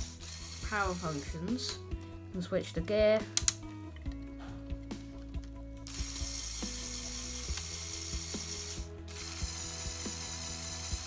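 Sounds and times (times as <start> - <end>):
toy motor and gears whirring: 0.0 - 1.8, 5.8 - 11.0.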